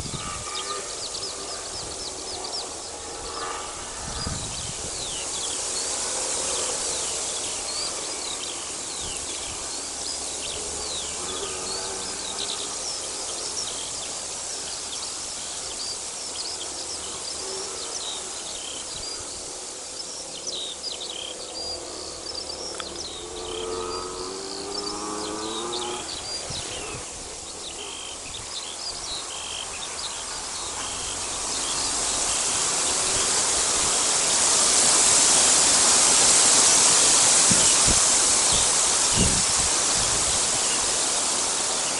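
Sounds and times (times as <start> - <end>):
songbirds chirping and singing: 0.0 - 41.9
steady hiss: 0.0 - 41.9
low rapidly pulsing sound: 21.5 - 28.2.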